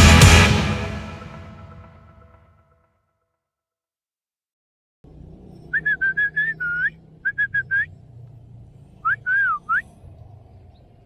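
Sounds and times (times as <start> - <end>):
person whistling high notes: 5.8 - 7.9, 9.1 - 9.8.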